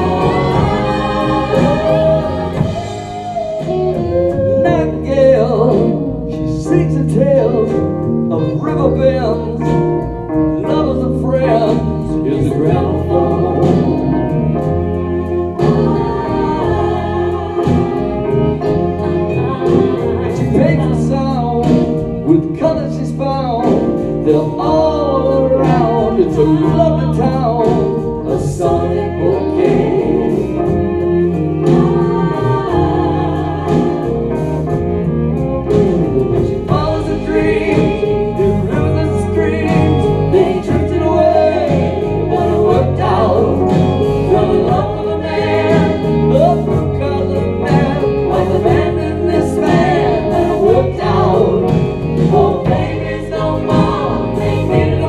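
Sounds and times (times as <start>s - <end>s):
backing singers: 0.0s - 6.8s, 10.6s - 55.0s
stage piano: 0.0s - 55.0s
man singing: 4.4s - 9.8s, 10.6s - 14.0s, 20.2s - 30.4s, 36.6s - 43.7s, 46.3s - 51.7s.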